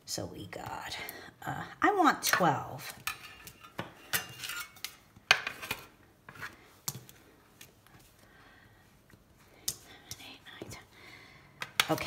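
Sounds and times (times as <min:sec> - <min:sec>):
scraping on stone: 0:03.0 - 0:06.5.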